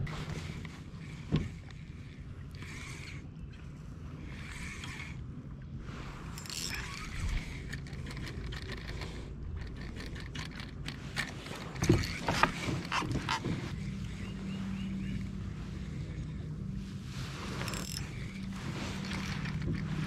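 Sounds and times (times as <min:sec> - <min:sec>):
fishing reel clicks and knocks: 0:00.0 - 0:05.3, 0:06.3 - 0:14.2, 0:17.6 - 0:20.0
low hum of kayak drive: 0:00.0 - 0:20.0.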